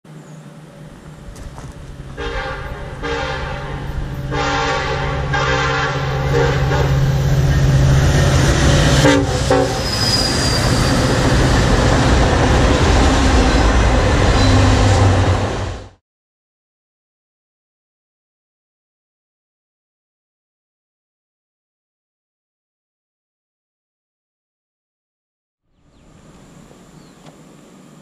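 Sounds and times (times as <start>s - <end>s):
locomotive rumble: 0.1s - 16.0s, 25.8s - 28.0s
train cars clattering: 0.7s - 15.8s
locomotive horn blasts: 2.0s - 11.8s.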